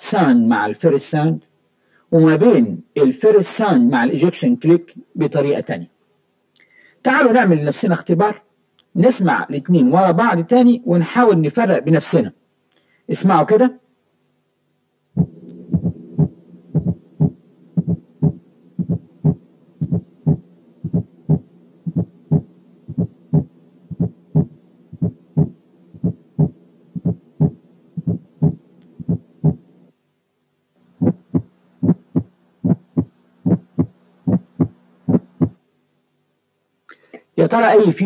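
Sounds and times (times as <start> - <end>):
heartbeat sounds: 15.2 - 29.6, 31.0 - 35.6.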